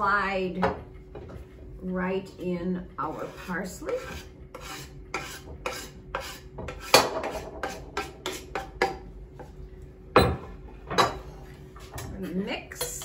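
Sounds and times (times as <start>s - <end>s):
knife scraping cutting board: 3.0s - 8.7s.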